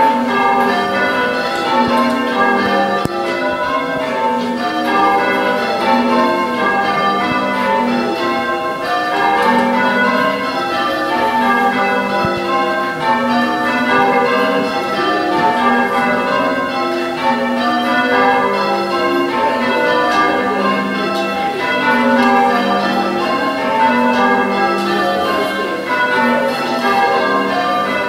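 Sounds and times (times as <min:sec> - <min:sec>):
church bells ringing: 0:00.0 - 0:28.0.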